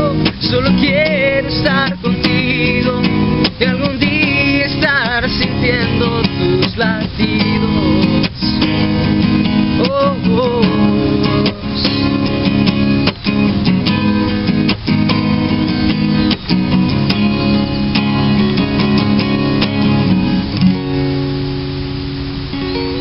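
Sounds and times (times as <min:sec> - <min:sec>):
young man singing: 0:00.0 - 0:12.5
acoustic guitar strumming: 0:00.0 - 0:23.0.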